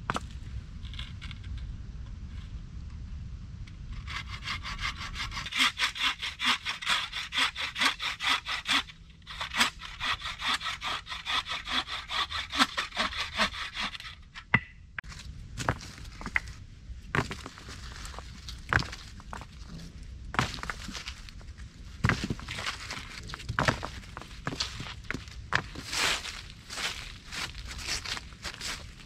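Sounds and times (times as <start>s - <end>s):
hand saw cutting wood: 4.0s - 14.4s.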